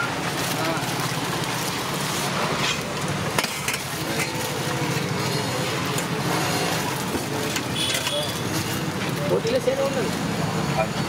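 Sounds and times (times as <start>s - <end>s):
faint voices: 0.0s - 11.0s
street traffic: 0.0s - 11.0s
ladle scraping steel pot: 1.0s - 9.2s.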